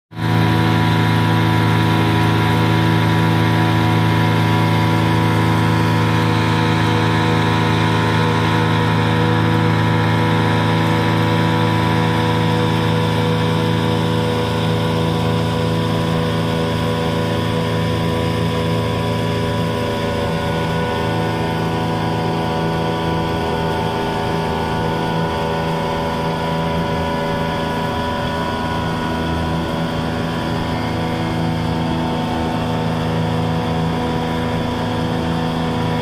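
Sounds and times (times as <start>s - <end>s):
outboard motors running: 0.1s - 36.0s
rushing water from boat wake: 0.1s - 36.0s.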